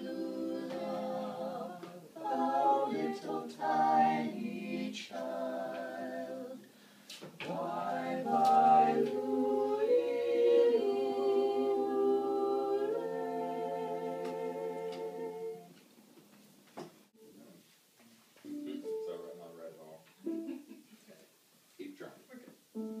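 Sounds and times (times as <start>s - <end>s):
vocal quartet singing a cappella: 0.0s - 15.8s.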